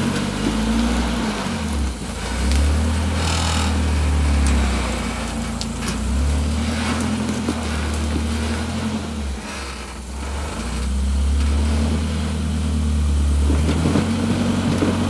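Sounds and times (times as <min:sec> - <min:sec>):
tyres crunching on rock: 0:00.0 - 0:10.8
engine revving hard: 0:00.0 - 0:15.0.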